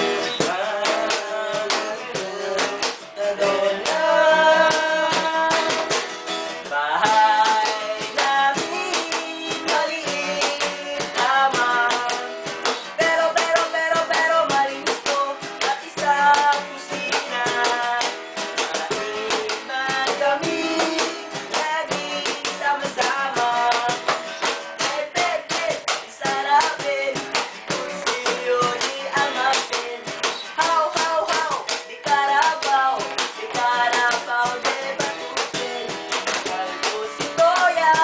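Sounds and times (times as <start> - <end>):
acoustic guitar strumming: 0.0 - 38.0
cajon slapped in a steady beat: 0.0 - 38.0.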